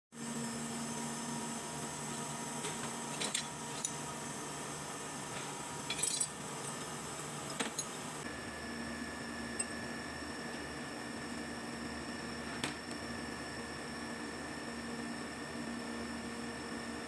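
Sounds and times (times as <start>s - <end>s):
steady background hum: 0.2s - 14.7s
scrap steel clinking: 5.9s - 6.8s.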